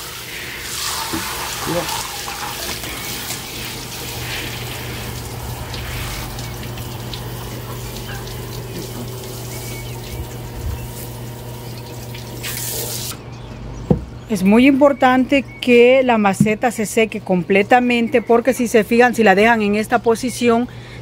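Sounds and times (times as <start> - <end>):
hose spraying water into pots: 0.0 - 13.2.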